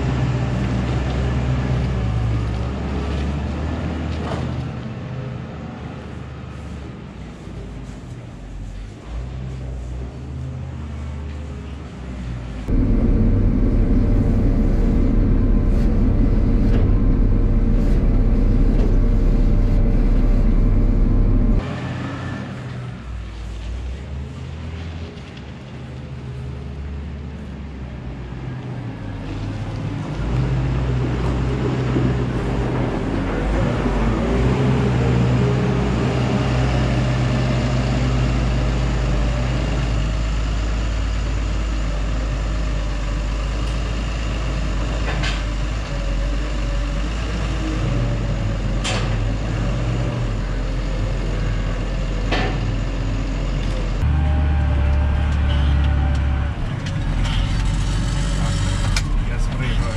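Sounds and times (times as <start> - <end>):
diesel engine running: 12.5 - 21.9, 30.9 - 59.9.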